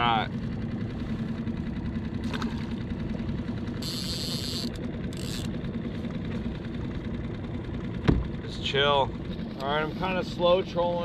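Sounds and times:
outboard motor running: 0.0s - 11.0s
small splash in water: 2.2s - 2.8s.

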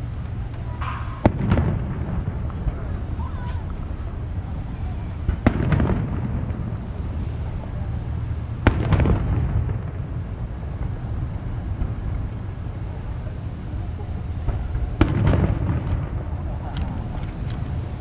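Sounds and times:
low background noise: 0.0s - 18.0s
distant firework bangs with echo: 0.7s - 3.4s, 5.1s - 12.8s, 14.4s - 16.7s.

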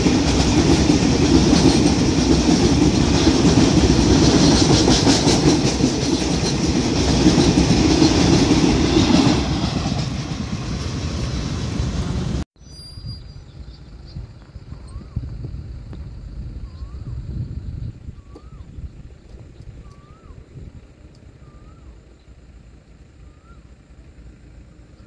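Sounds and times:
freight train passing: 0.0s - 12.4s.

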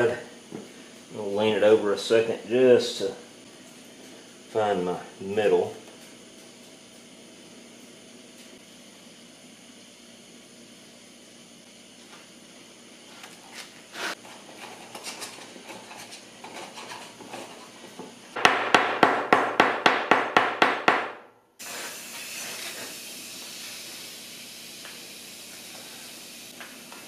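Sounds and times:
gas hissing through tube: 21.6s - 27.0s.

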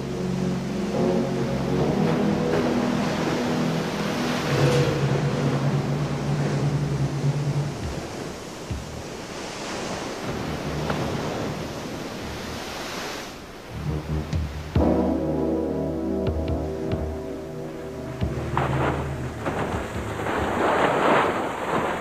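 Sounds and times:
surf washing over rocks: 0.0s - 22.0s
low steady hum: 13.4s - 21.9s.

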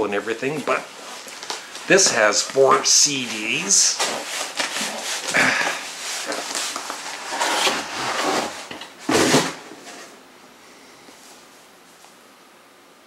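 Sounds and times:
packaging rustling and scraping: 0.4s - 10.2s.

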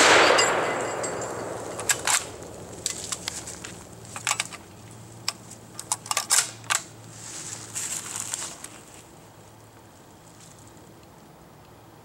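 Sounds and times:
short rustle: 7.1s - 9.1s.

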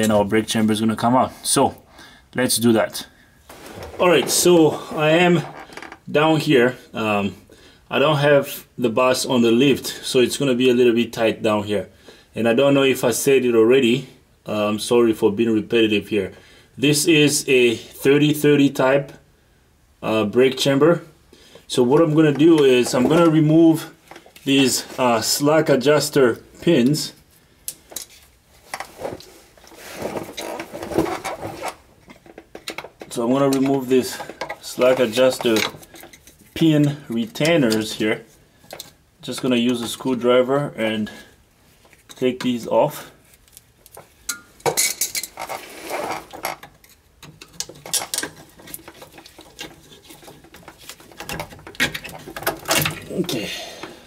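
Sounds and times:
shuffling handling noise: 3.4s - 5.9s, 21.4s - 25.6s, 26.2s - 40.2s, 41.6s - 44.2s, 47.7s - 54.0s.

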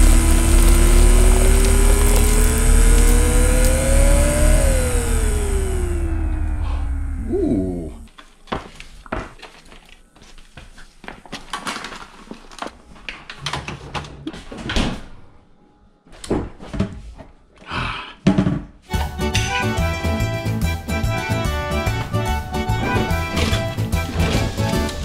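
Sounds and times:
falling whine: 0.0s - 8.1s.

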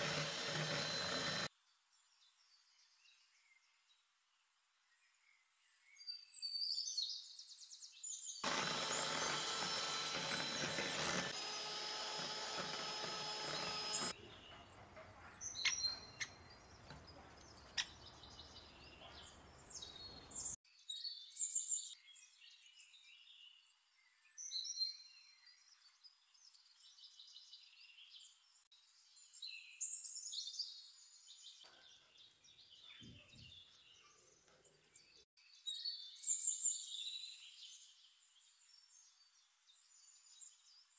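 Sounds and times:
electric mixer motor whining: 0.0s - 1.5s, 8.4s - 14.2s
birds chirping: 8.3s - 20.6s.

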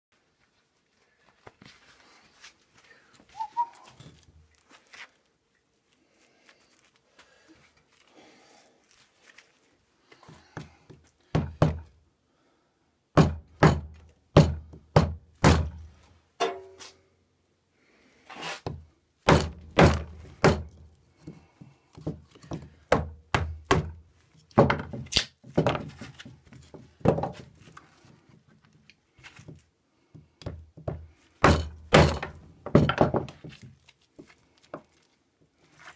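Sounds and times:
rubber mallet thudding on knife: 30.4s - 33.2s.

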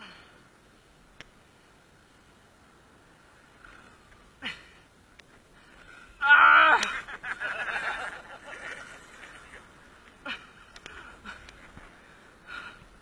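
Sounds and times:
person crying out: 6.2s - 7.0s.

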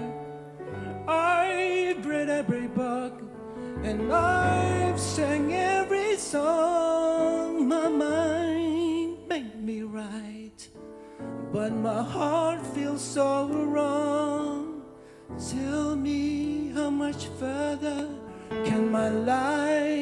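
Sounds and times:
person singing with vibrato: 0.0s - 20.0s
soft instrumental accompaniment: 0.0s - 20.0s.

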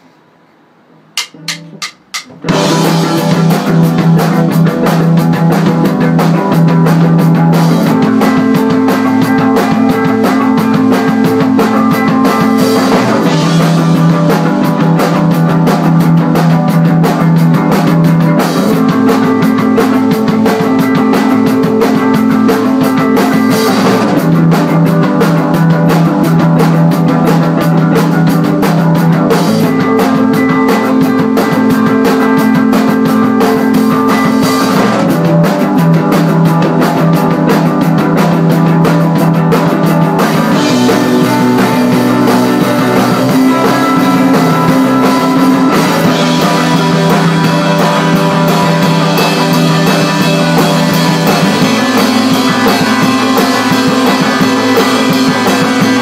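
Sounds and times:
rock band playing: 1.1s - 56.0s
sharp count-in clicks: 1.2s - 2.4s.

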